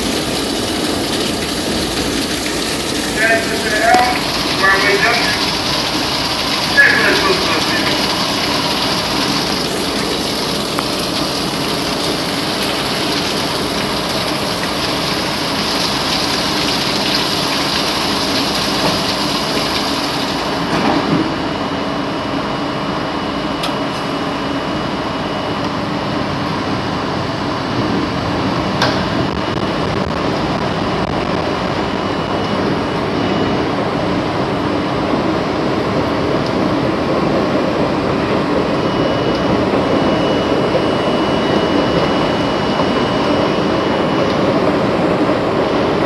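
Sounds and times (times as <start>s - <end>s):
rain: 0.0s - 20.7s
subway car running equipment: 0.0s - 46.0s.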